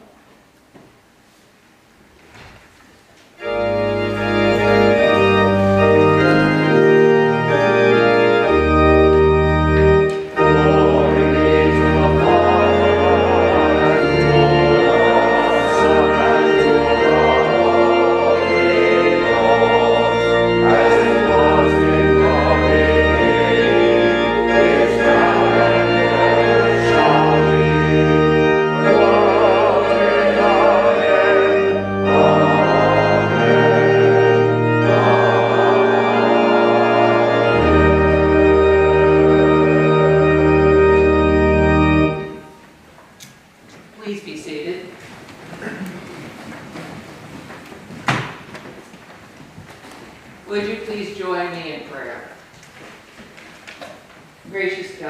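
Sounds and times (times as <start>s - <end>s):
church organ playing chords: 3.4s - 42.9s.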